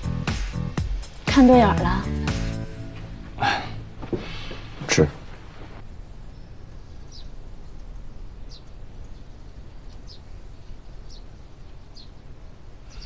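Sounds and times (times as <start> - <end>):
low background hum: 2.7 - 13.0
bird chirping: 5.9 - 13.0.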